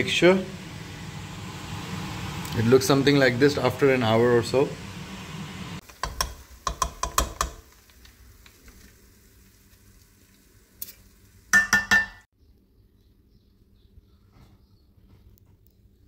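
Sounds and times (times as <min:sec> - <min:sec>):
metal clanks on pot rim: 0:11.6 - 0:12.2.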